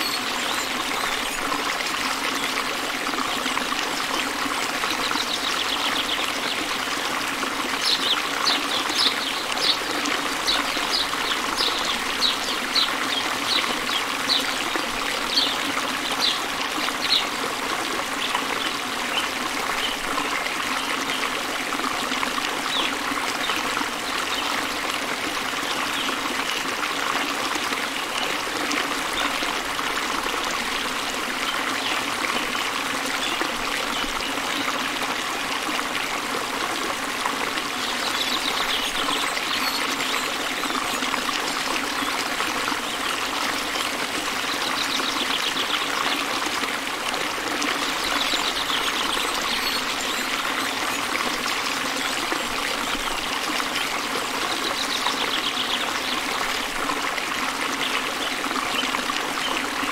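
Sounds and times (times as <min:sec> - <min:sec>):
stream water trickling: 0:00.0 - 0:59.9.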